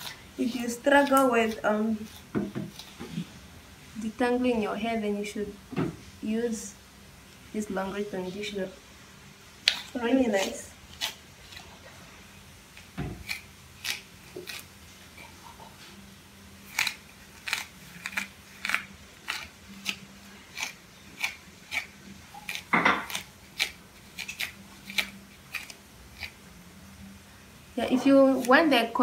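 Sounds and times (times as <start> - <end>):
comb rasping through hair: 0.0 - 3.3, 12.8 - 15.5, 16.6 - 26.4.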